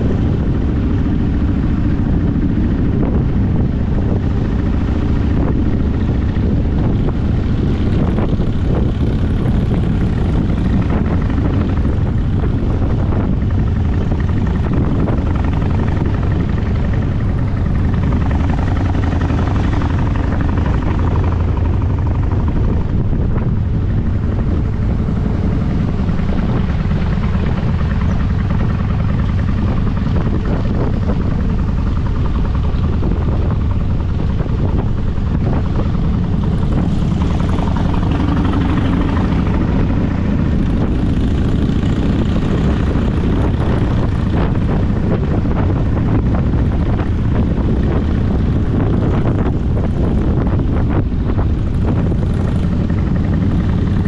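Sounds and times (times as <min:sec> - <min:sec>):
motorcycle engine droning: 0:00.0 - 0:54.0.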